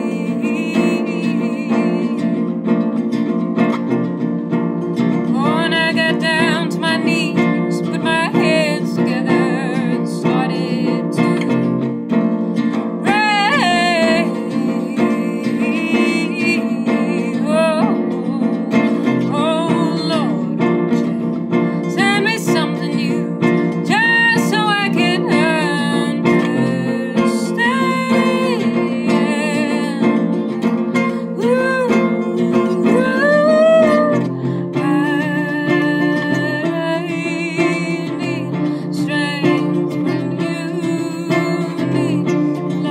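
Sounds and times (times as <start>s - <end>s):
woman singing with vibrato: 0.0s - 4.2s, 4.9s - 42.9s
classical guitar: 0.0s - 42.9s.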